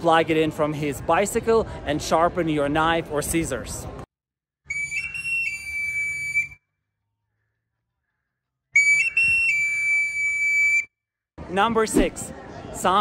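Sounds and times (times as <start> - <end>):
high whistle call: 4.6 - 6.7, 8.7 - 10.9.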